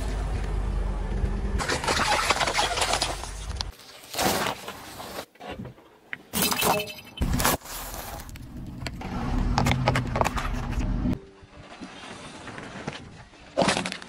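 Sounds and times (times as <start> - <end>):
moving car rumble: 0.0 - 3.7, 7.2 - 11.4
plastic cups cracking under tyre: 12.9 - 14.0.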